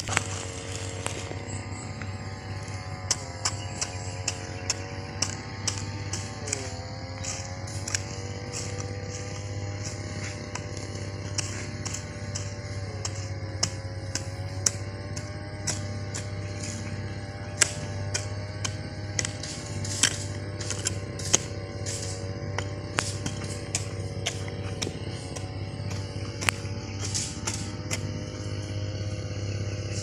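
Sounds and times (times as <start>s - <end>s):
engine drone: 0.0s - 30.0s
hand hoe chopping soil: 0.0s - 30.0s.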